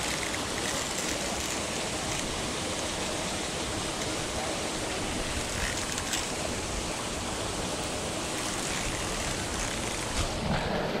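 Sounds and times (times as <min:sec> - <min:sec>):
churning water rushing: 0:00.0 - 0:11.0.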